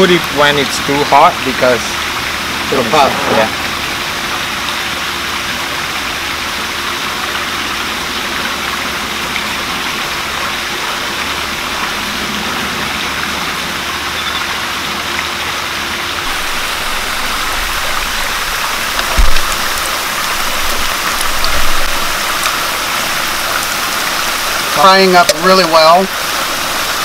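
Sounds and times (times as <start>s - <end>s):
batter sizzling in hot oil: 16.2s - 27.0s
loud thump: 19.1s - 19.8s.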